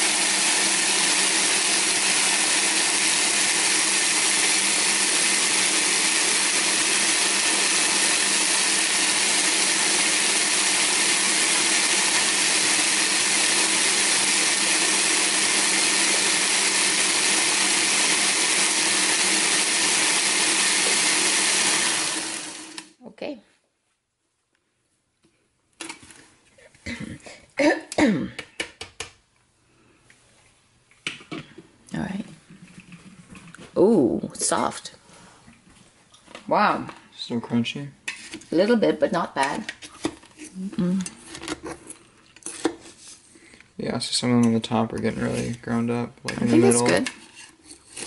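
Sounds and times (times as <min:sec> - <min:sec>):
blender motor grinding: 0:00.0 - 0:23.0, 0:46.5 - 0:47.1.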